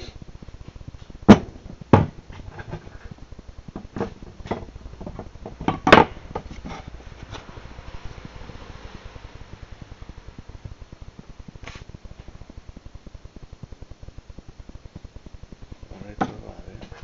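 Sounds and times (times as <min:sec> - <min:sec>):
knocks on wooden tabletop: 0:01.3 - 0:02.2.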